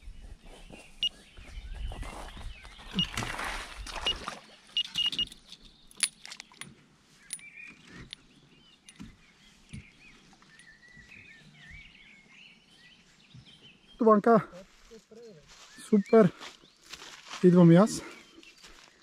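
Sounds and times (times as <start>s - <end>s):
faint birdsong: 0.0s - 19.0s
fishing gear clattering: 4.0s - 9.2s
short high electronic beeps: 4.8s - 5.3s.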